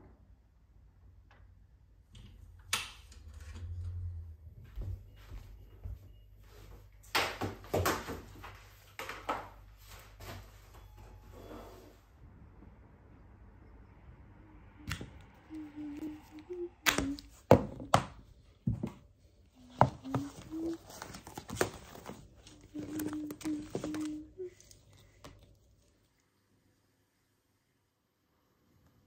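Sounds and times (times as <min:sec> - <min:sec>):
faint low hum: 0:09.9 - 0:29.0.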